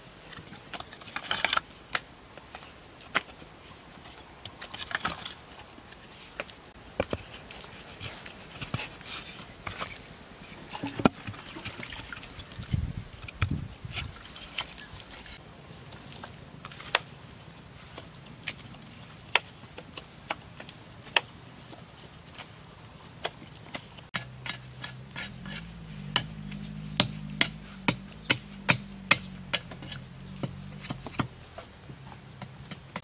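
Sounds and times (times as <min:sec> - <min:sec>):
bamboo scraping rustles: 0:00.0 - 0:33.0
bamboo pieces clicking and knocking: 0:00.3 - 0:09.0
dull low thumps: 0:24.2 - 0:31.4.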